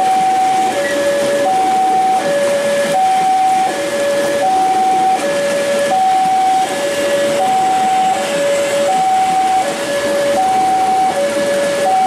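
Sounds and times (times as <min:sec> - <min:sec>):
two-tone crossing alarm: 0:00.0 - 0:12.0
heavy rain: 0:00.6 - 0:11.9
electric train passing: 0:03.6 - 0:11.8.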